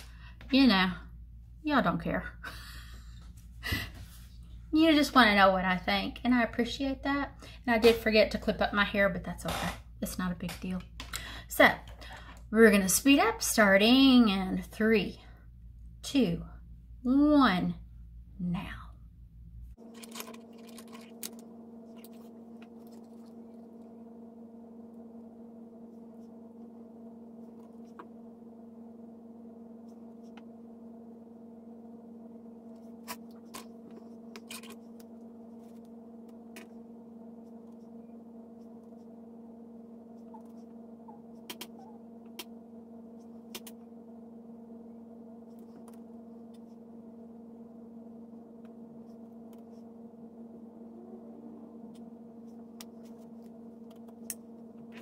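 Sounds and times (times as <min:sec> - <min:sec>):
steady pitched hum: 0:00.0 - 0:55.0.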